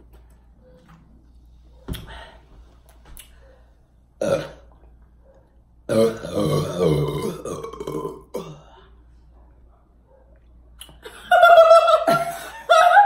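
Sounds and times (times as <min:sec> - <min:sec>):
person belching: 0:04.2 - 0:04.7, 0:05.9 - 0:08.7
high-pitched laughter: 0:11.0 - 0:13.0.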